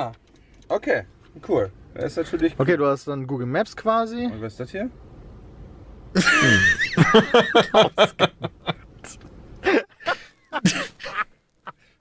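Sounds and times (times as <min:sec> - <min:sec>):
hearty laughter: 0:06.2 - 0:12.0.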